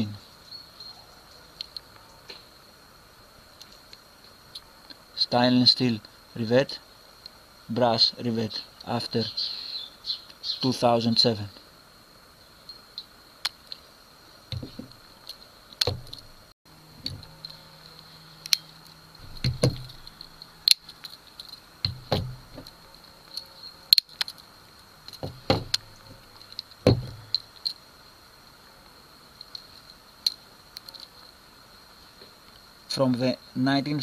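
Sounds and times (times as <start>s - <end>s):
thuds on wooden table: 14.5s - 14.9s, 15.8s - 16.2s, 19.2s - 20.0s, 21.9s - 22.7s, 25.2s - 26.2s, 26.8s - 27.3s
metallic clicks and rattles: 25.1s - 27.8s.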